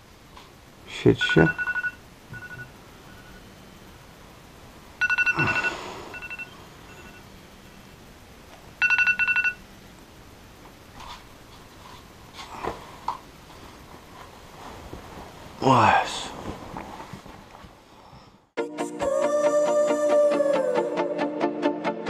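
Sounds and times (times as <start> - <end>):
electronic keypad beeping: 1.4 - 2.7, 5.0 - 7.2, 8.8 - 9.6.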